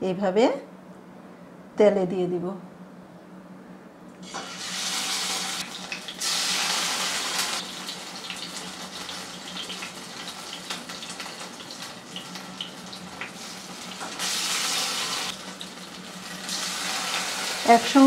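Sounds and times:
hot oil crackling and popping: 0:04.2 - 0:17.9
loud sizzle of frying batter: 0:04.2 - 0:18.0.

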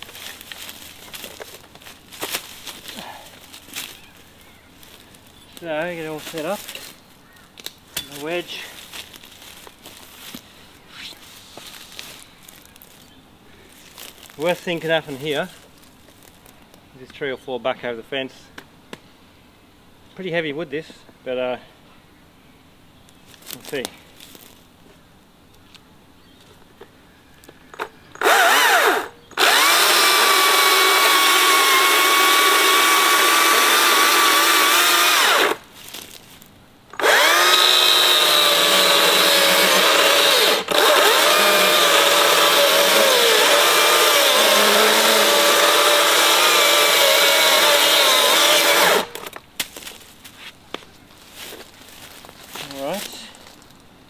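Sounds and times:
electric chainsaw cutting wood: 0:28.2 - 0:35.6, 0:37.0 - 0:49.3.

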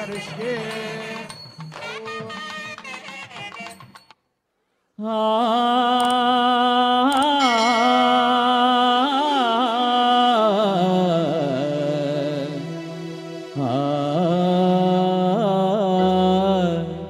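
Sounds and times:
ornamented devotional melody: 0:05.0 - 0:17.0.

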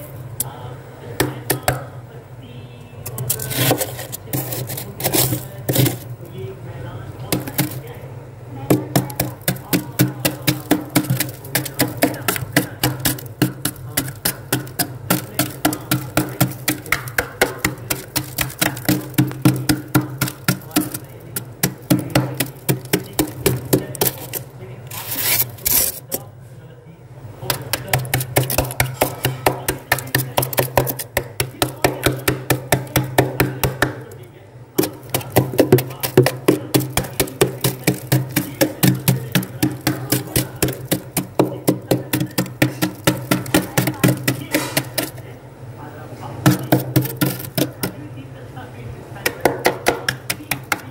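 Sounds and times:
knife scraping frost: 0:03.2 - 0:06.1, 0:22.3 - 0:26.1.

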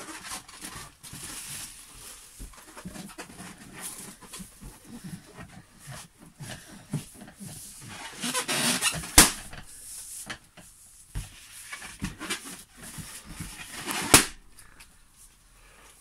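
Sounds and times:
balloon squeaking and rubbing: 0:07.4 - 0:09.9
sharp crack: 0:09.0 - 0:09.7, 0:13.9 - 0:14.6
balloon bursting pop: 0:09.1 - 0:09.6, 0:14.1 - 0:14.5.

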